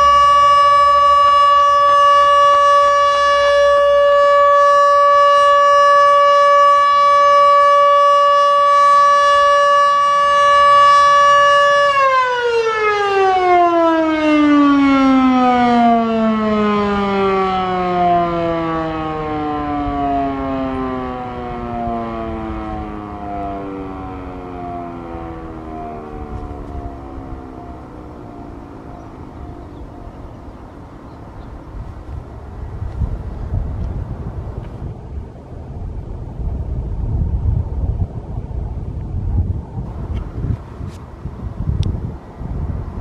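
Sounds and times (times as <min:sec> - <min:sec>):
warning siren: 0:00.0 - 0:36.3.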